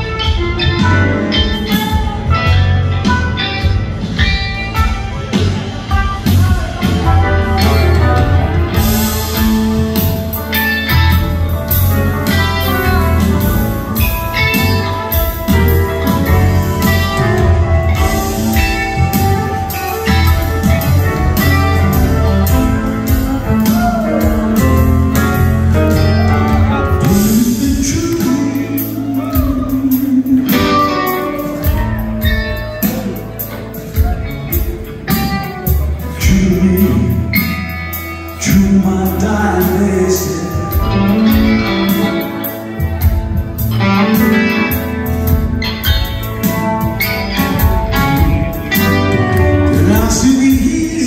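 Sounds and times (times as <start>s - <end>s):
live band playing: 0.0s - 51.0s
piano: 0.0s - 51.0s
upright bass: 0.0s - 51.0s
man singing: 21.1s - 31.8s, 35.9s - 43.2s, 48.2s - 51.0s.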